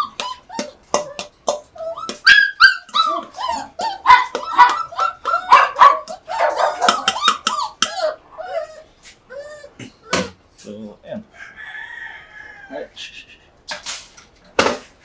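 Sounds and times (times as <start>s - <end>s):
puppies yipping and whining: 0.0s - 10.5s.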